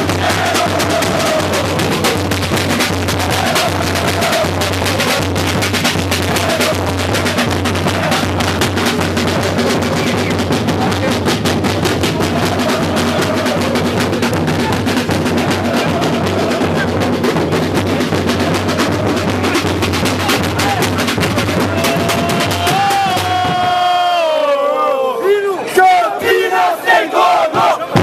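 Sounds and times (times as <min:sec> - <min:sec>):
bass drums beating fast rhythm: 0:00.0 - 0:24.2
long shout: 0:20.6 - 0:27.9.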